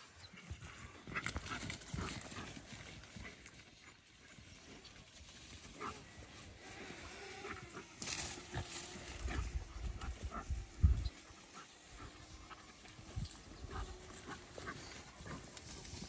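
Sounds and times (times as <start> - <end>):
vegetation rustling: 4.6 - 16.0.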